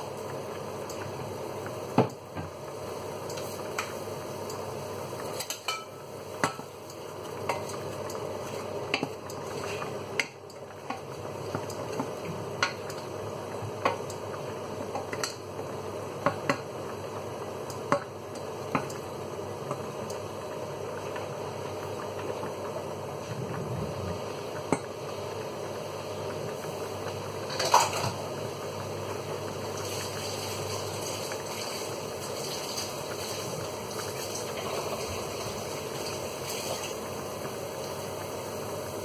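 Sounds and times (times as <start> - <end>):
cooking hiss: 0.0 - 39.0
spoon tapping against pan: 5.5 - 6.7.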